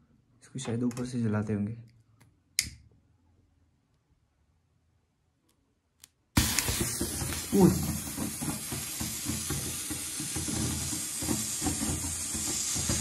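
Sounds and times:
sparkler hissing and crackling: 6.4 - 13.0.

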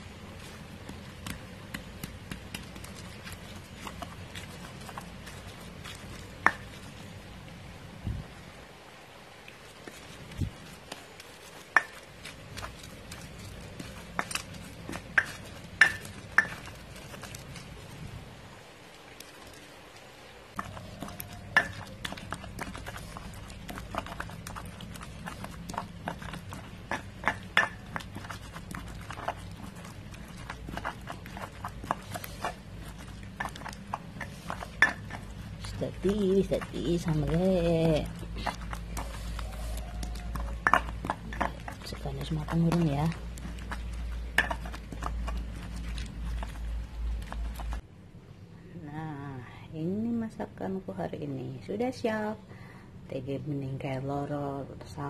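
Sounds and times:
stone pestle grinding in mortar: 0.0 - 7.3, 9.8 - 18.0, 20.5 - 47.8
low steady hum: 0.0 - 55.0
clicks of stone on stone: 9.7 - 17.8, 20.5 - 47.8.

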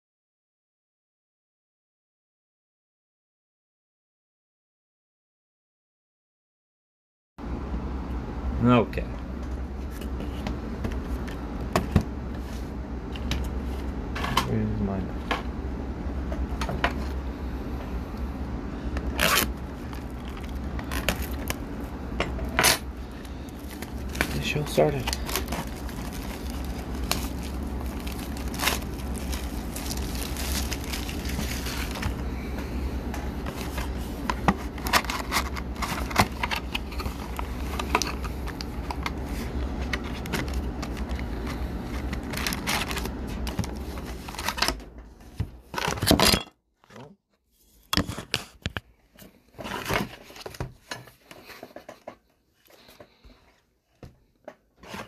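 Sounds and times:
low background hum: 7.4 - 55.0
foil packs crinkling: 19.1 - 21.8, 23.0 - 32.4, 33.4 - 44.7.

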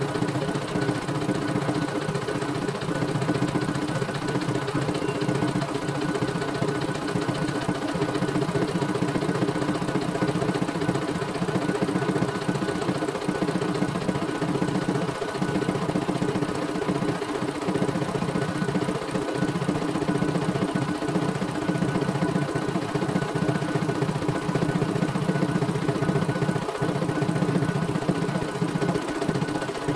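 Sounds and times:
embroidery machine stitching: 0.0 - 29.9.

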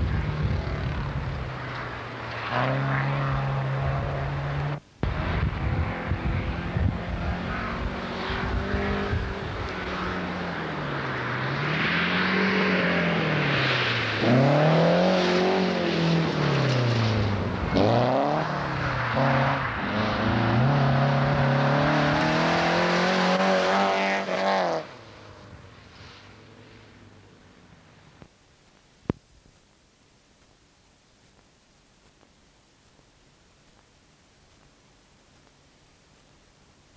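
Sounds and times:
rally car engine at full throttle: 0.0 - 25.3
tyres hissing on gravel: 25.0 - 27.1.

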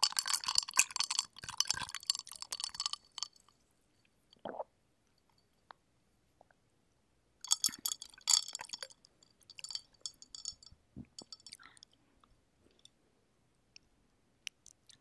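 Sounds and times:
ice cubes clinking in a glass: 0.0 - 3.4, 7.5 - 11.6.

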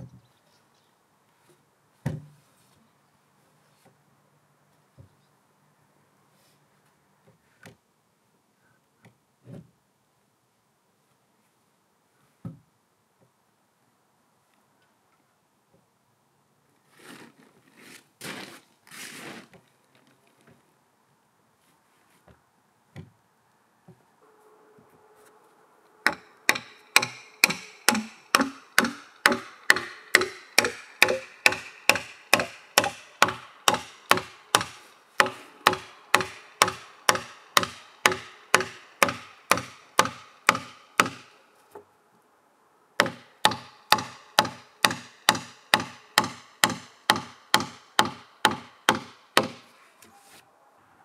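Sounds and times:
hammering: 26.0 - 41.3, 43.0 - 49.7.

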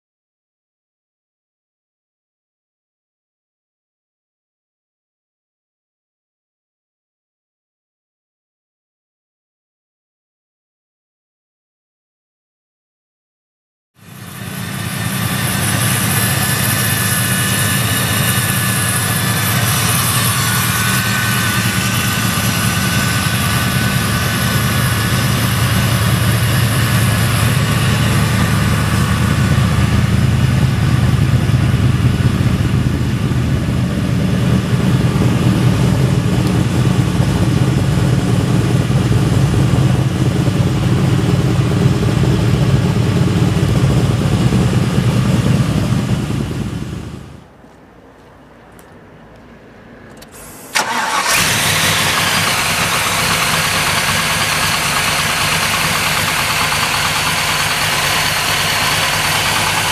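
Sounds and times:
car engine idling: 14.1 - 47.5, 50.1 - 59.9.

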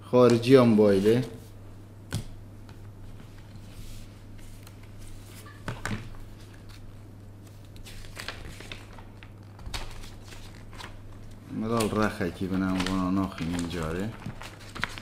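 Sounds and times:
steady low hum: 0.0 - 15.0
paper rustling and tapping: 4.4 - 6.8, 7.4 - 15.0.

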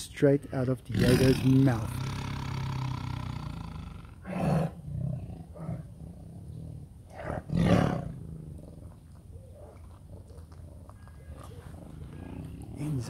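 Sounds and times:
tiger snarling: 0.9 - 8.9.

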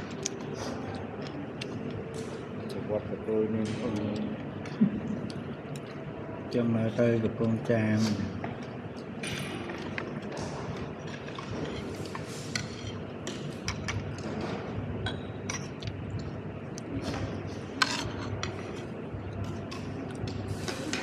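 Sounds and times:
cutlery scraping ceramic plate: 17.8 - 18.8.

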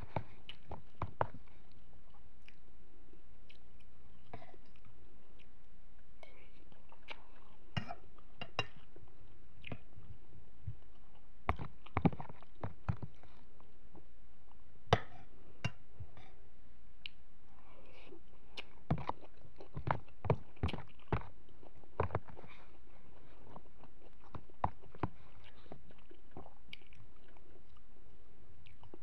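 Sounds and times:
chewing: 0.0 - 5.6, 6.2 - 10.2, 17.0 - 27.9, 28.6 - 29.0.

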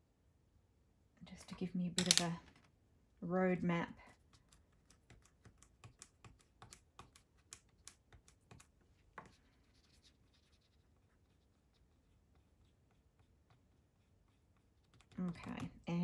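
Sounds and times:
pencil sketching on paper: 9.3 - 15.8.

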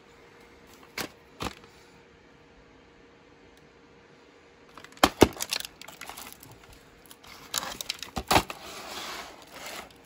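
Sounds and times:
plastic case rustling: 4.7 - 10.0.

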